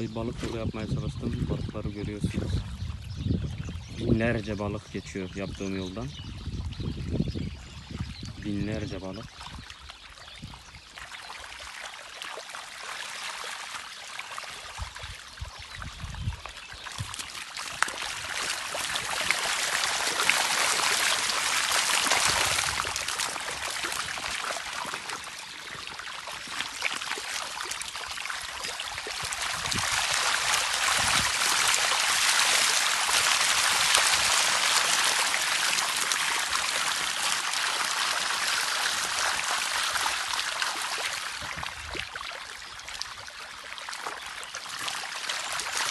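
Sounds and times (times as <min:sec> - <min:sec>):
shallow water trickling over stones: 0:09.3 - 0:45.9.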